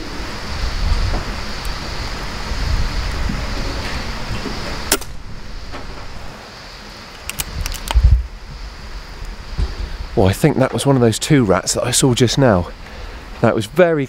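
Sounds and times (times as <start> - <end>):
steady hiss: 0.0 - 14.0
air rifle shot: 4.9 - 5.2
light clicks: 7.1 - 8.0.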